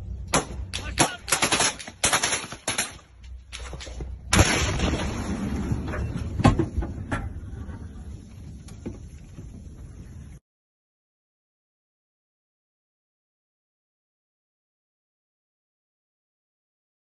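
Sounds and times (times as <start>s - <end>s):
automatic gunfire: 0.4s - 3.0s
loud explosion: 4.3s - 6.6s.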